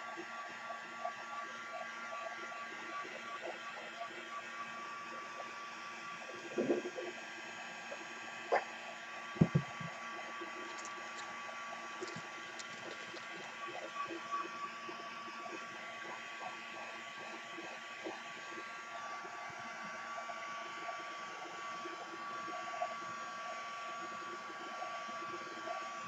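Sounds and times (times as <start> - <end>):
fan whine: 4.3 - 22.6.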